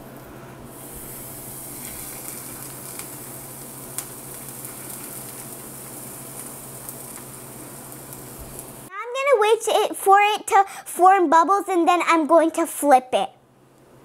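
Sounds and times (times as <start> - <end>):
batter sizzling in a pan: 0.7 - 8.9
small crackles: 0.9 - 8.9.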